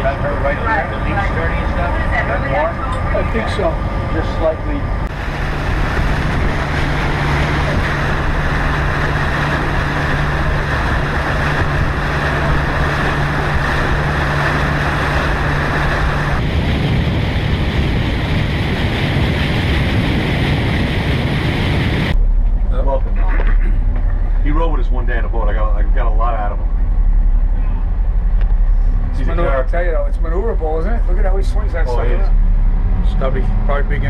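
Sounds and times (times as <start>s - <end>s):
water rushing past hull: 0.0s - 22.8s
boat engine drone: 0.0s - 34.0s
wind buffeting microphone: 0.0s - 34.0s.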